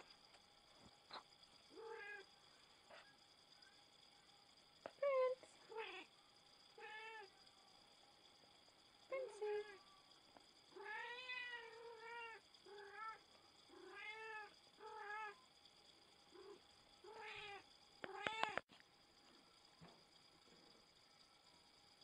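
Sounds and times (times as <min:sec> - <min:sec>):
cat yowling: 0:06.8 - 0:07.3, 0:10.8 - 0:13.2, 0:13.8 - 0:15.4.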